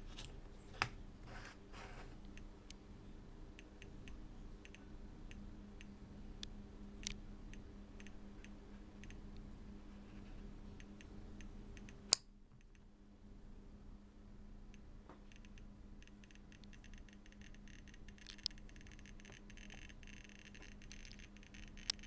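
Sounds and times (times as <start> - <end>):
geiger counter clicking: 3.6 - 9.4, 10.8 - 12.9, 14.7 - 22.0.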